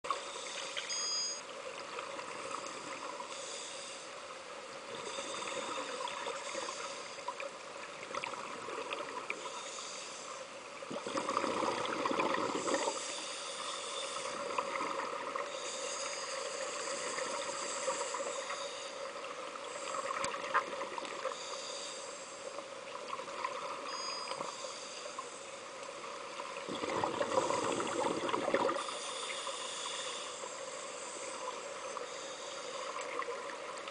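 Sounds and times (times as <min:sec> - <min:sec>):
steady underwater hum: 0:00.0 - 0:33.9
diver breathing through regulator: 0:03.3 - 0:04.2, 0:12.4 - 0:14.6, 0:15.5 - 0:19.0, 0:21.3 - 0:22.4, 0:27.1 - 0:32.9
gurgling exhaust bubbles: 0:26.7 - 0:28.8.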